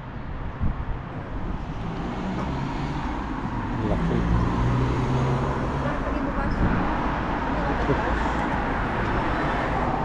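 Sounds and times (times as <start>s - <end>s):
steady road hum: 0.0s - 10.0s.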